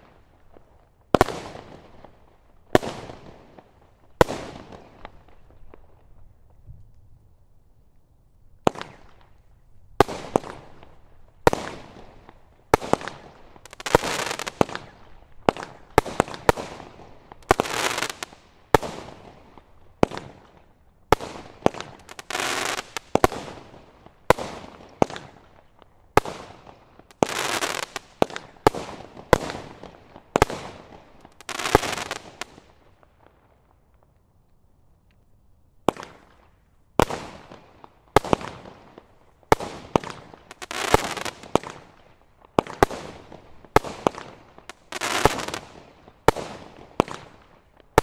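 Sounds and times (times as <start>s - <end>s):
crackle of bursting firework stars: 0.0s - 48.0s.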